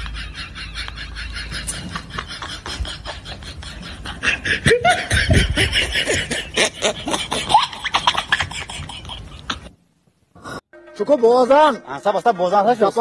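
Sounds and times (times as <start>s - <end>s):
people laughing: 0.0s - 9.7s.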